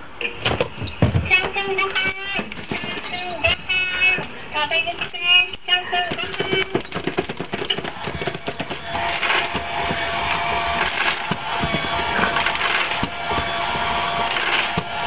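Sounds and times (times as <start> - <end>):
food dispenser motor whine: 7.8 - 15.0.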